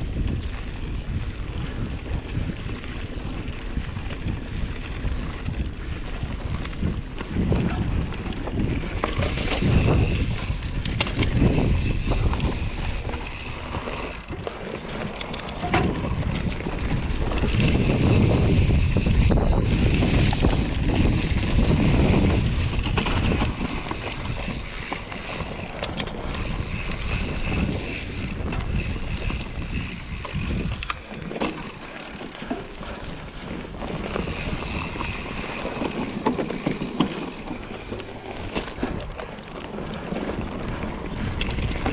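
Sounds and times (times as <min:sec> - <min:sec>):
tyres rolling on dirt: 0:00.0 - 0:41.9
wind rushing over microphone: 0:00.0 - 0:41.9
bike knocks and rattles: 0:00.1 - 0:41.9.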